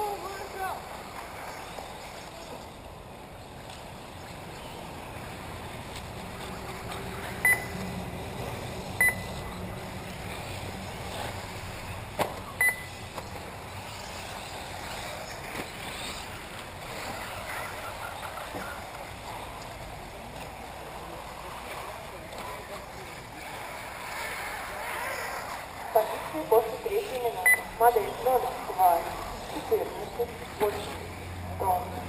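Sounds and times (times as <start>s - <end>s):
outdoor rushing noise: 0.0s - 32.0s
high electronic beeps: 7.4s - 7.8s, 9.0s - 9.4s, 12.6s - 13.0s, 27.4s - 27.8s.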